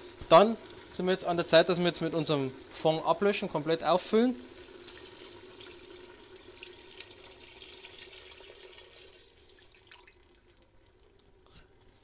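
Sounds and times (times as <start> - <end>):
liquid pouring into a pot: 4.2 - 11.4.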